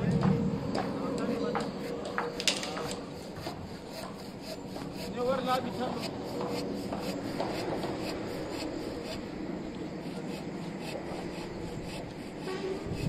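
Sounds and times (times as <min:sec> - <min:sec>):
rhythmic scraping strokes: 0:00.0 - 0:13.0.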